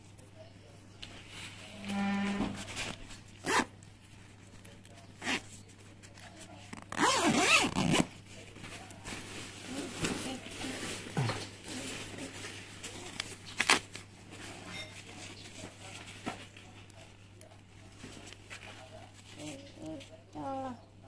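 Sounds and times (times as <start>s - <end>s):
nylon rustling: 2.6s - 3.7s, 5.2s - 14.0s
sleeping bag zipper: 3.4s - 3.7s, 6.7s - 8.1s.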